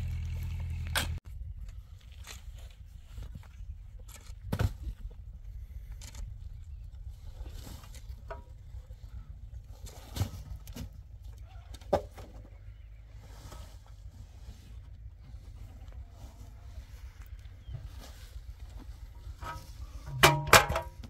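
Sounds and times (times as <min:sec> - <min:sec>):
blocks knocking and scraping: 0:19.4 - 0:21.0.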